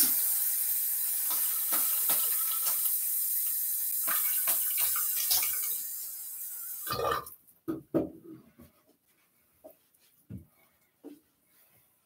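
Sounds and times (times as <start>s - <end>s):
sink tap running: 0.0s - 6.8s.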